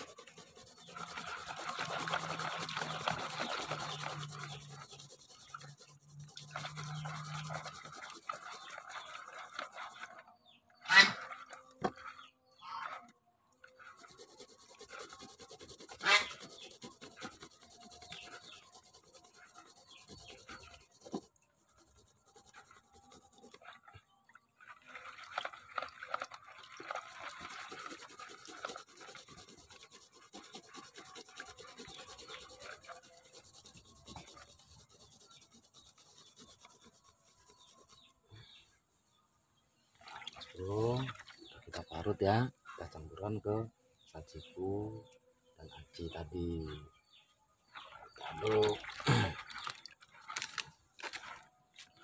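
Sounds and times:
onion rasping on grater: 0:00.0 - 0:09.9, 0:13.8 - 0:23.6, 0:27.2 - 0:38.0.

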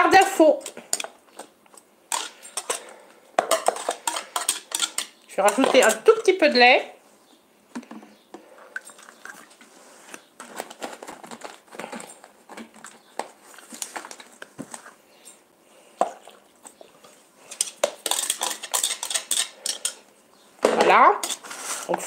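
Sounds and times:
utensil clinking and scraping cookware: 0:00.1 - 0:06.6, 0:17.4 - 0:20.1, 0:20.7 - 0:22.0.

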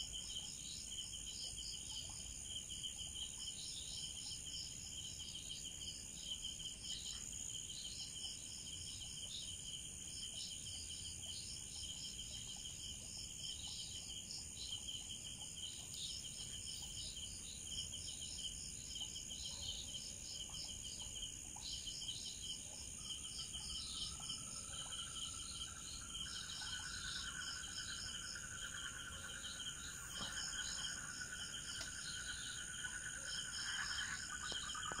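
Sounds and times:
crickets chirping trills: 0:00.0 - 0:35.0
low-pitched insect trill: 0:00.0 - 0:35.0
insects ringing: 0:23.0 - 0:35.0.

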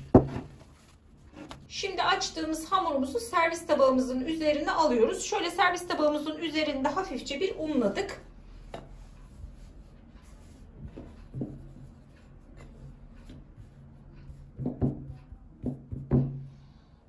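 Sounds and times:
hands rubbing and patting dough: 0:00.0 - 0:01.7, 0:06.9 - 0:16.2.

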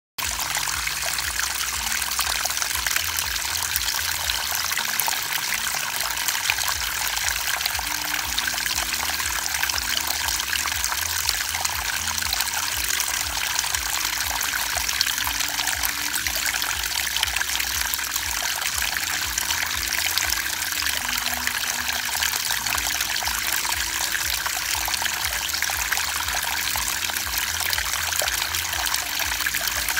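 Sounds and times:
pond water splashing and trickling: 0:00.2 - 0:29.9.

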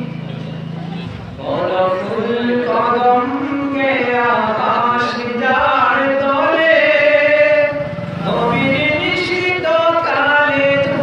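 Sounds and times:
man singing into microphone: 0:01.3 - 0:11.0.

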